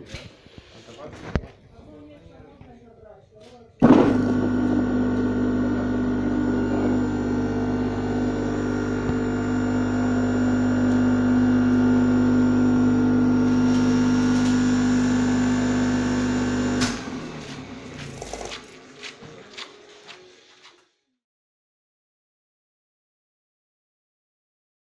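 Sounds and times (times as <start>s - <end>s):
electric motor humming: 3.8s - 18.6s.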